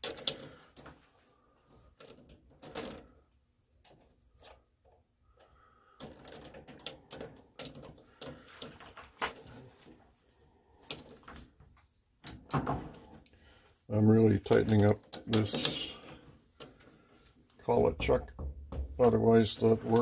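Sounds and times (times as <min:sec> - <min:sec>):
metal clicks and knocks: 0:00.0 - 0:01.0, 0:02.0 - 0:03.2, 0:03.8 - 0:09.5, 0:14.3 - 0:17.0, 0:17.7 - 0:20.0.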